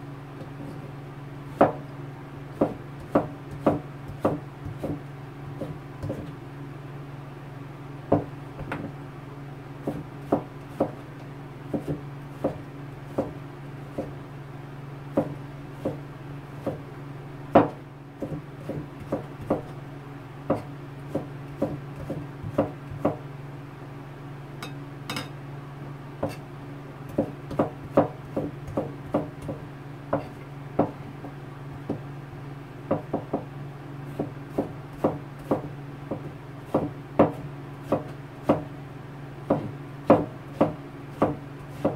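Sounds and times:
steady low hum: 0.0s - 41.9s
knife chopping on plastic board: 1.6s - 1.8s, 2.6s - 5.0s, 5.6s - 6.3s, 9.8s - 11.0s, 11.7s - 14.1s, 15.1s - 16.0s, 17.5s - 19.7s, 20.5s - 23.2s, 26.2s - 26.4s, 27.1s - 32.0s, 32.9s - 33.5s, 34.1s - 38.7s, 39.5s - 41.9s.

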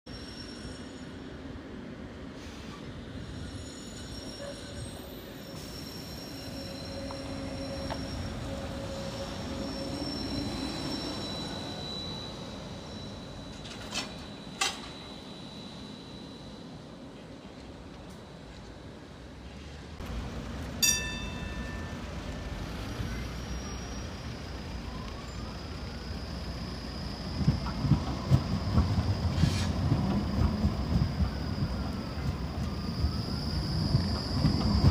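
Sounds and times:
trolleybus electric whine: 2.9s - 19.4s, 20.0s - 34.9s
traffic noise: 17.2s - 28.4s
tram bell ding: 20.8s - 24.1s.

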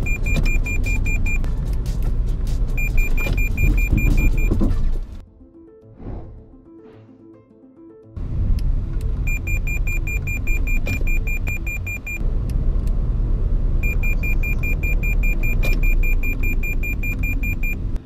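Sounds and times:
car road and engine rumble: 0.0s - 5.2s, 8.2s - 18.0s.

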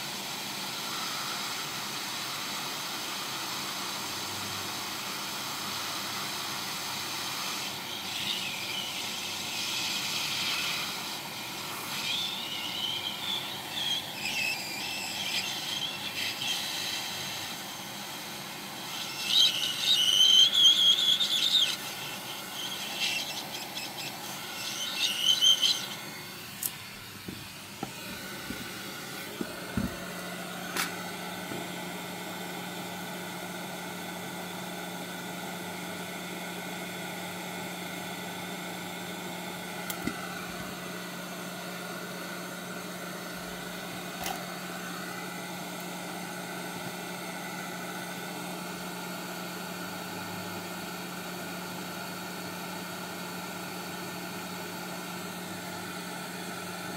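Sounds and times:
hot air blower humming: 0.0s - 56.9s
high squeaky scraping: 11.8s - 16.8s, 18.9s - 26.2s.

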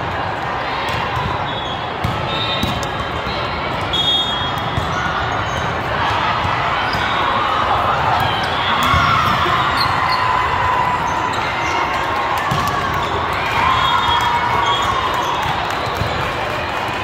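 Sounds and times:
crowd voices: 0.0s - 17.0s
volleyballs struck and bouncing: 0.8s - 16.2s.

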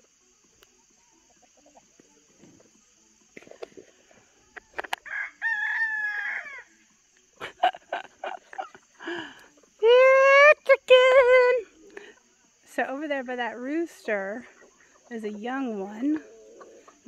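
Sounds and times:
chickens clucking: 0.0s - 5.1s, 13.3s - 17.0s
rooster crowing: 4.8s - 6.8s.

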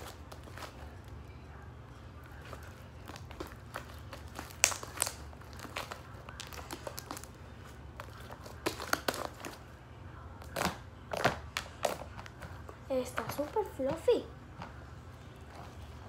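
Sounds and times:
slime squishing and crackling: 0.0s - 1.3s, 2.2s - 9.7s.

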